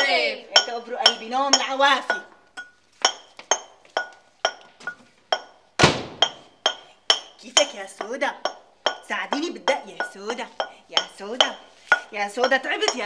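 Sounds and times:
person speaking: 0:00.0 - 0:02.4, 0:06.8 - 0:13.0
metal pestle striking mortar: 0:00.0 - 0:13.0.

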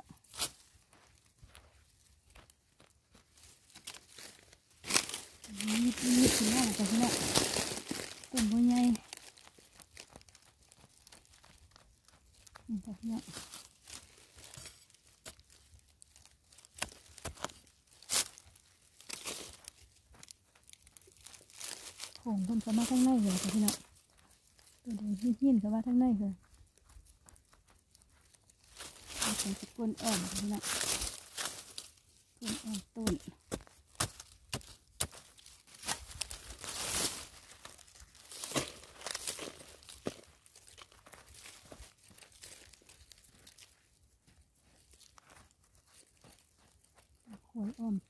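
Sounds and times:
hand scraping loose earth: 0:02.6 - 0:12.6, 0:13.2 - 0:24.8, 0:26.7 - 0:44.0
metal blade scraping soil: 0:14.5 - 0:15.3
spade striking dry soil: 0:32.5 - 0:37.1.

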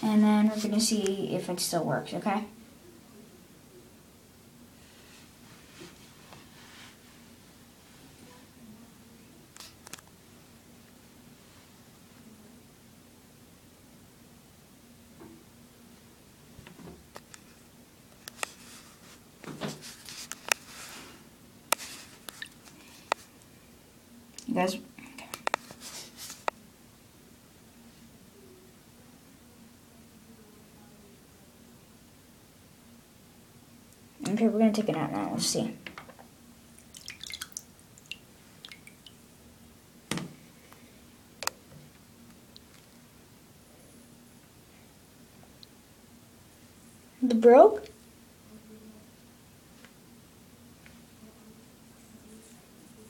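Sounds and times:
soft rustle: 0:04.8 - 0:08.4, 0:18.3 - 0:21.2, 0:21.8 - 0:23.4, 0:25.5 - 0:26.5, 0:51.9 - 0:53.0.

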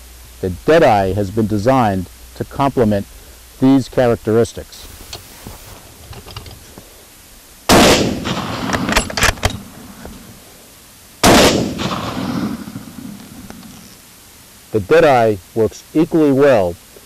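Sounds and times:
rifle shots with echo: 0:07.7 - 0:09.1, 0:11.2 - 0:12.8.

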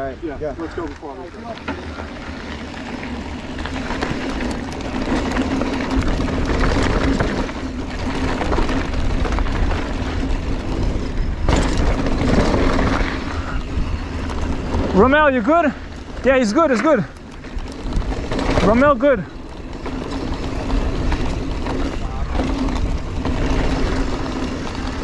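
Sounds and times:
bike rattling: 0:00.0 - 0:25.0
tyres crunching over dirt: 0:00.0 - 0:25.0
wind buffeting microphone: 0:00.0 - 0:25.0.

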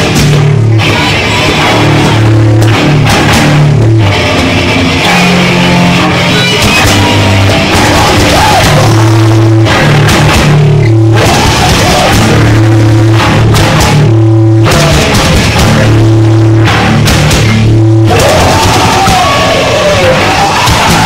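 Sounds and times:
drum kit pounding: 0:00.0 - 0:21.0
electric guitar heavy riff: 0:00.0 - 0:21.0.

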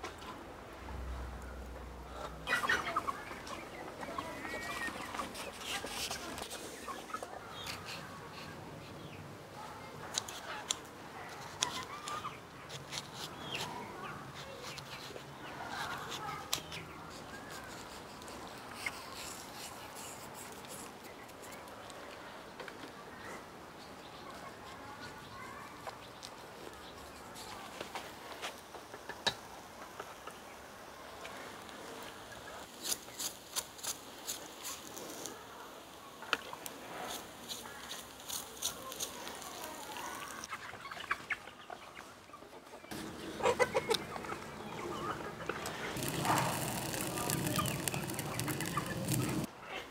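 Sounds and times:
food sizzling on grill: 0:31.4 - 0:40.5, 0:45.9 - 0:49.5
crackles and pops: 0:31.6 - 0:40.5, 0:45.6 - 0:49.5
birds chirping: 0:37.3 - 0:49.5.

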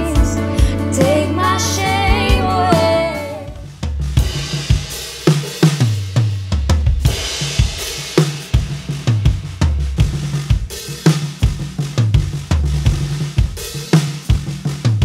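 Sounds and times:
low bass line: 0:00.0 - 0:03.6
drum kit groove: 0:00.0 - 0:15.0.

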